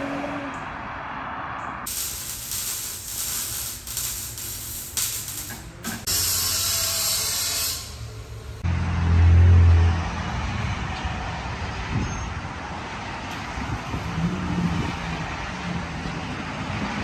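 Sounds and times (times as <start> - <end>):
hissing and clattering workshop noise: 1.9 - 8.6.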